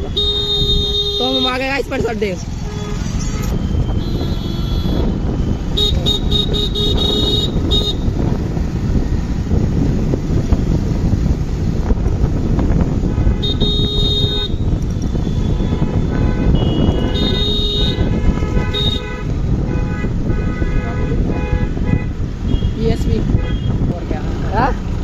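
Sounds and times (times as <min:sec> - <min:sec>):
vehicle horn honking: 0:00.0 - 0:01.8, 0:02.6 - 0:08.2, 0:13.0 - 0:23.8
wind and road noise: 0:00.0 - 0:25.0.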